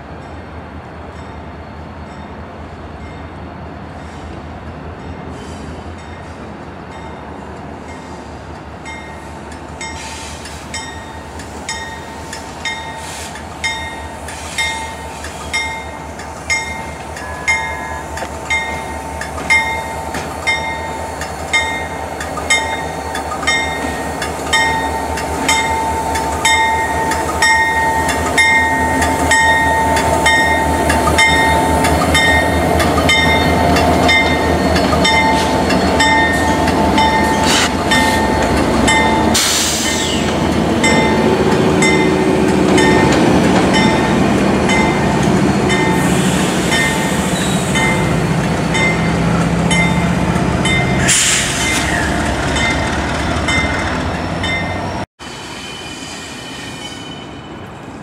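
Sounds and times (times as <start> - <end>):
diesel locomotive engines: 0.0 - 58.0
locomotive bell ringing: 10.7 - 39.4, 40.4 - 55.1.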